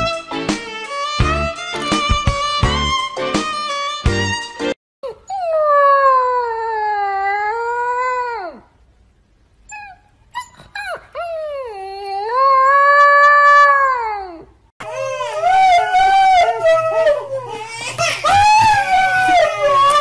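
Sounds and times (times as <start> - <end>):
puppy howling: 5.0 - 8.6, 9.7 - 20.0.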